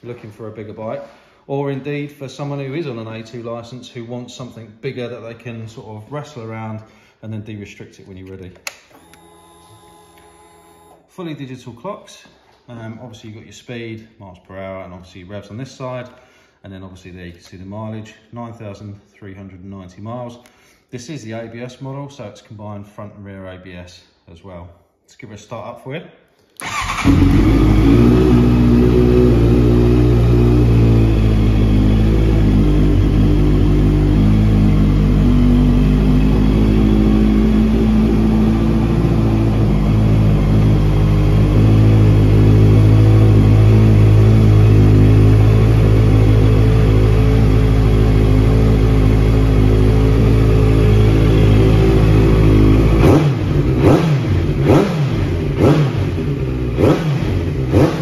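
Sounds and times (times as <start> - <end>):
motorcycle engine idling: 26.6 - 54.6
engine throttle blips: 26.6 - 58.0.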